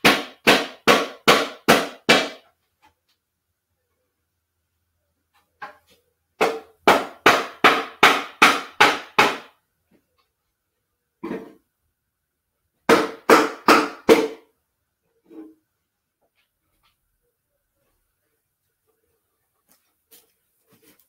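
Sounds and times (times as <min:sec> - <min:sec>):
mallet knocking wooden joints: 0:00.0 - 0:02.4, 0:05.6 - 0:09.5, 0:12.9 - 0:14.4.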